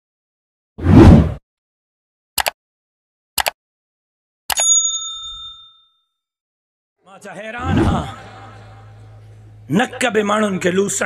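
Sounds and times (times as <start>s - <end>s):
notification bell ding: 4.5s - 6.0s.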